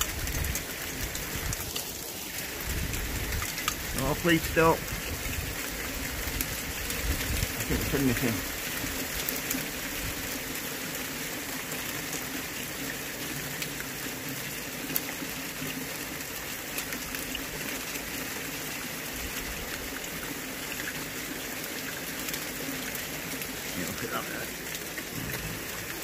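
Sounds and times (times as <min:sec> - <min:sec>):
heavy rain and hail falling: 0:00.0 - 0:26.0.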